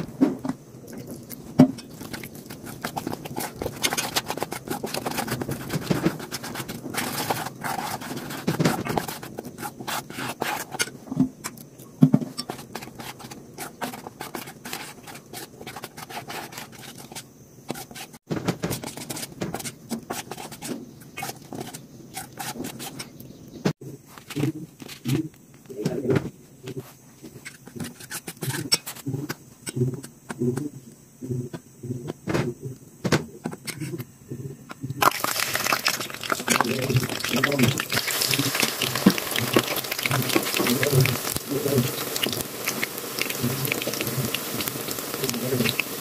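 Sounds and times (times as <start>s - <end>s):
spoon scraping metal bowl: 1.1s - 11.0s, 12.3s - 18.2s.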